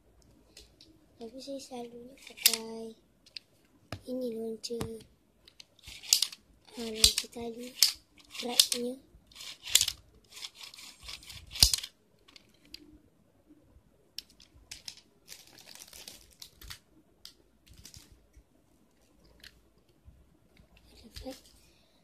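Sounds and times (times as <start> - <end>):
plastic packaging tearing and crinkling: 15.3 - 16.8.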